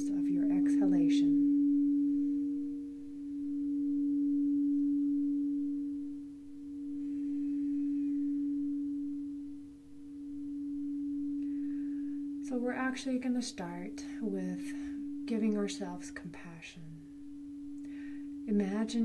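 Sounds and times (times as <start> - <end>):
sustained pure low tone: 0.0 - 19.0.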